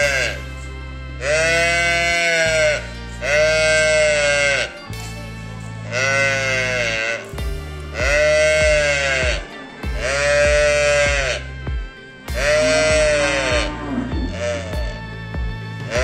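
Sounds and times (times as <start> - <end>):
calf mooing: 0.0 - 0.4, 1.2 - 4.8, 5.9 - 7.3, 8.0 - 11.5, 12.3 - 15.0.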